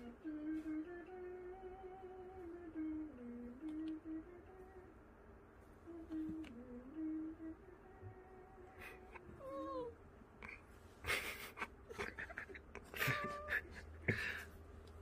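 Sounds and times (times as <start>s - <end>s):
cat mewing: 9.3s - 10.0s, 13.0s - 13.7s.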